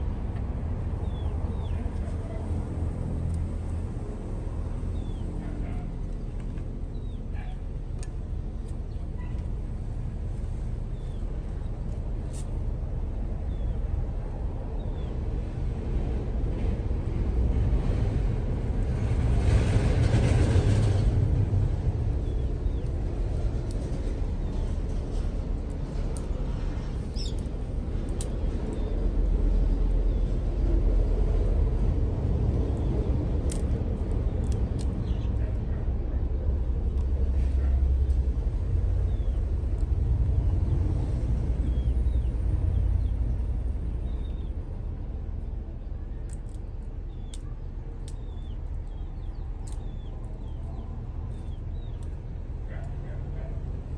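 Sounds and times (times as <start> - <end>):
steady low rumble: 0.0 - 53.9.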